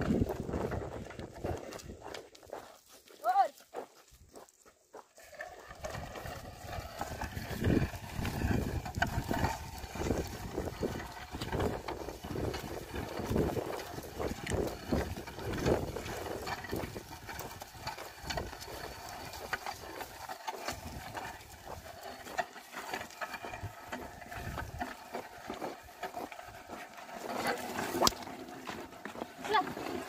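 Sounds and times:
footsteps and clicks: 0.0 - 30.0
plough crunching and scraping soil: 0.0 - 30.0.

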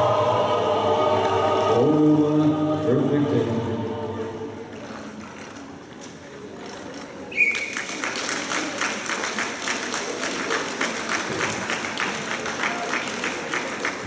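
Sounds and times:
audience applause: 7.4 - 14.0.

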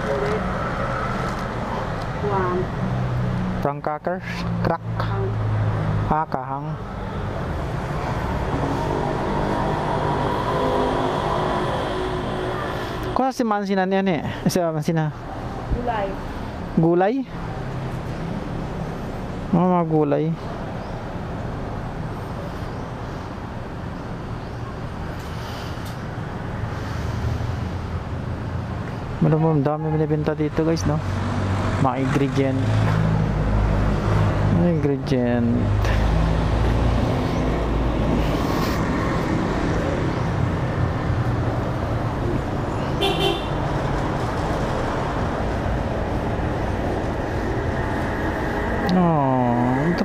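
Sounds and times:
busy shop rumble and hiss: 0.0 - 50.0
street traffic: 0.0 - 50.0
vehicle horn toot: 43.0 - 43.6.

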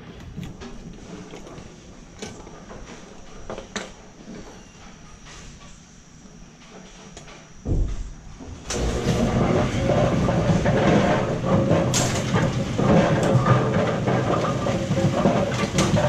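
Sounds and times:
mechanism rattling and clattering: 7.7 - 16.0.

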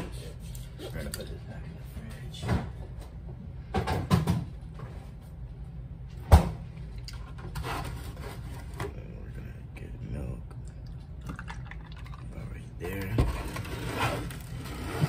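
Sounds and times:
knocks and thumps of kitchen doors: 3.7 - 4.6.

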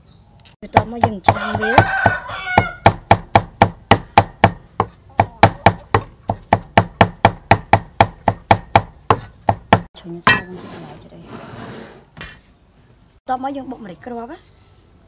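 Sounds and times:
knife chopping on wooden board: 0.8 - 10.5.

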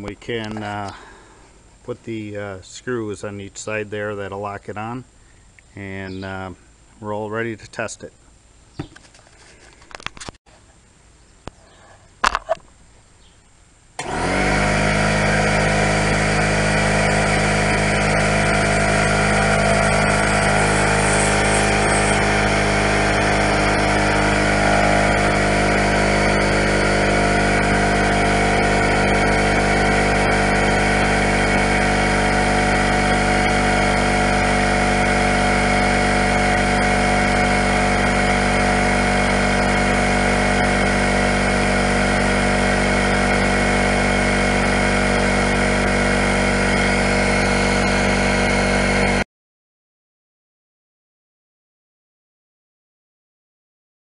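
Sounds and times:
air compressor running: 14.0 - 49.2.

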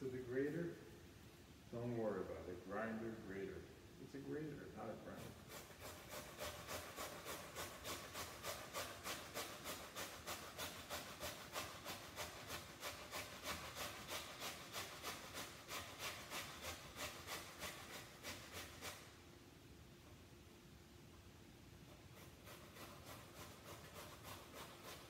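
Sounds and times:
potato rasping on grater: 5.0 - 19.2, 21.9 - 25.0.

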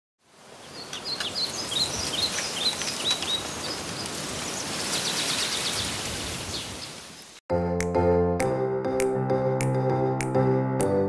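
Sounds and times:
steady outdoor hiss: 0.2 - 7.4
small birds chirping: 0.5 - 7.4.

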